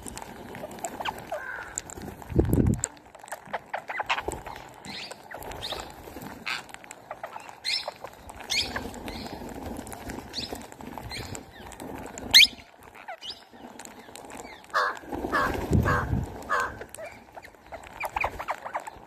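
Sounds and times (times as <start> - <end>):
parakeets calling: 3.5 - 9.5, 10.3 - 19.0.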